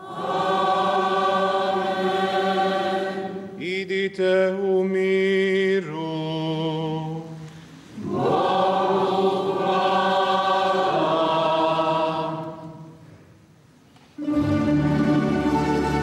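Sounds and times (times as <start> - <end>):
choir and congregation singing: 0.0 - 13.2
string ensemble playing: 14.2 - 16.0.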